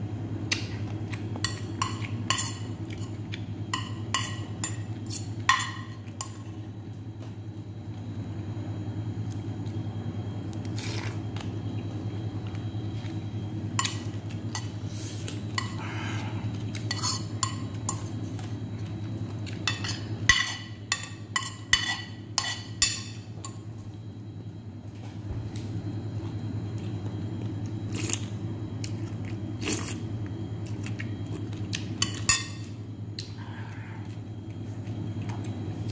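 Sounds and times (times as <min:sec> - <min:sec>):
steady low hum: 0:00.0 - 0:35.9
spoon scraping ceramic plate: 0:16.9 - 0:17.3.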